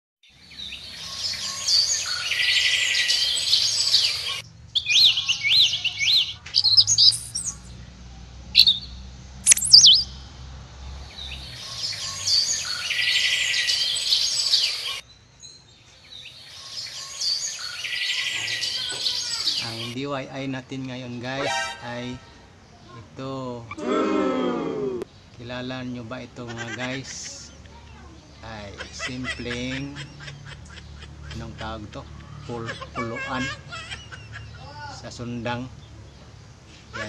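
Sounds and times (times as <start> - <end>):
birds chirping and twittering: 0.3 - 7.9, 8.5 - 10.3, 11.0 - 23.8, 24.7 - 37.0
bird warbling and whistled calls: 0.6 - 7.7, 8.6 - 10.1, 11.4 - 15.0, 16.4 - 20.0.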